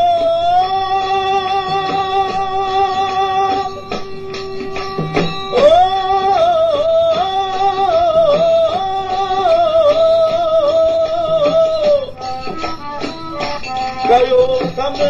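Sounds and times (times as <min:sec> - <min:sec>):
man singing a long note: 0:00.0 - 0:03.8, 0:05.5 - 0:12.2
harmonium: 0:00.0 - 0:15.0
light percussion: 0:00.0 - 0:15.0.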